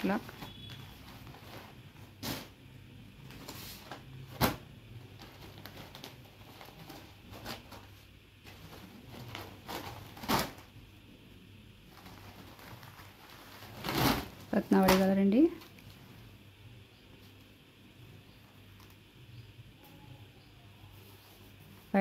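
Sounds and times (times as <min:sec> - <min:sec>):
fabric rustling: 0:00.0 - 0:02.6, 0:11.8 - 0:16.2.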